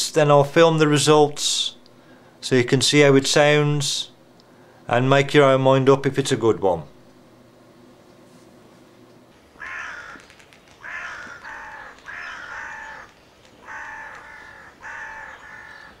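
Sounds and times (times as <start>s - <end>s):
crow cawing: 9.6s - 16.0s.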